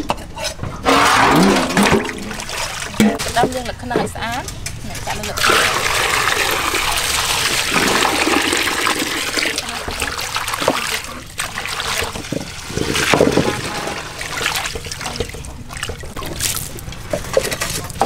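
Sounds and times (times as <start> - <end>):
water pouring into metal basin: 5.1 - 18.0.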